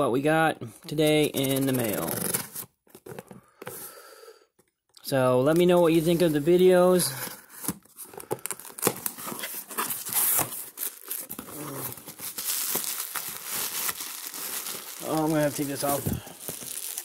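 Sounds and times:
bubble wrap crinkling: 0:07.4 - 0:17.0
cardboard box tape tearing: 0:08.5 - 0:17.0.

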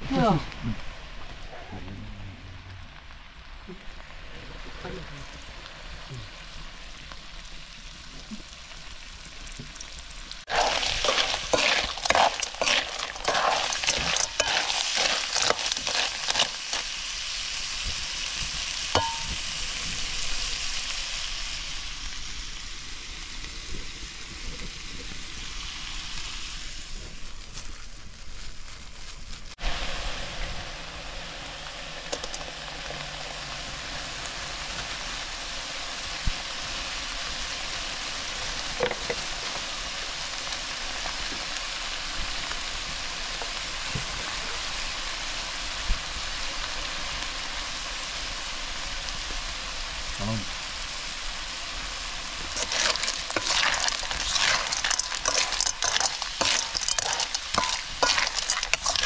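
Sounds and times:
food sizzling in a wok: 0:00.0 - 0:59.0
metal ladle scraping a wok: 0:10.5 - 0:16.9, 0:52.6 - 0:59.0.

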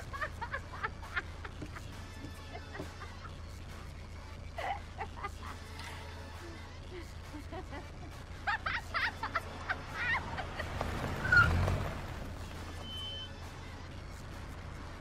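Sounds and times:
vehicle passing: 0:09.1 - 0:15.0.

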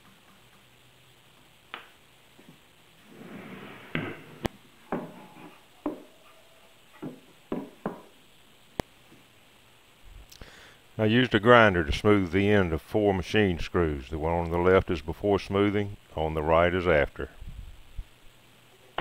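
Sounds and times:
short scrape: 0:03.0 - 0:04.5.

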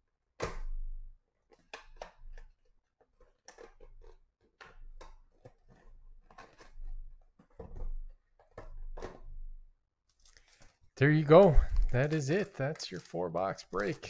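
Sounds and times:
handling clicks and rustles: 0:10.1 - 0:14.0.

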